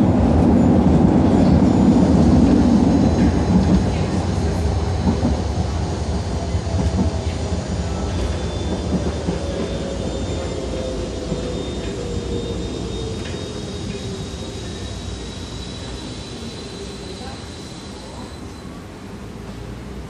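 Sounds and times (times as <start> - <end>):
tram wheels rumbling on rail: 0.0 - 20.0.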